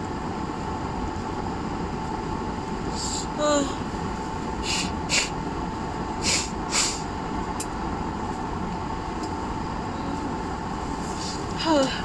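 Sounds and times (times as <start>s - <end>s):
person blowing nose: 4.6s - 5.4s, 6.2s - 7.0s.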